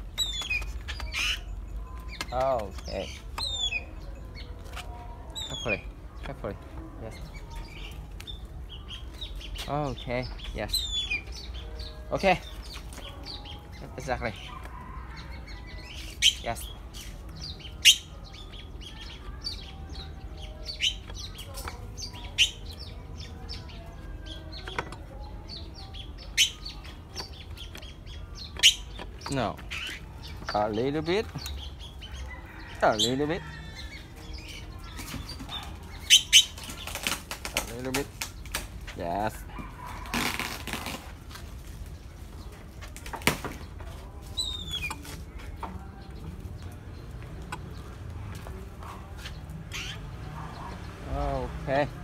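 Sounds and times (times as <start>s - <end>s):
small birds chirping: 0.0s - 52.0s.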